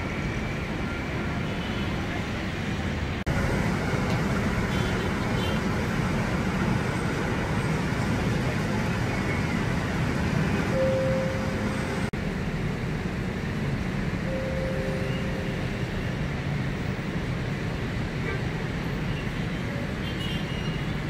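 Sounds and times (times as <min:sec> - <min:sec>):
heavy road traffic: 0:00.0 - 0:21.0
steady tone: 0:14.2 - 0:16.3.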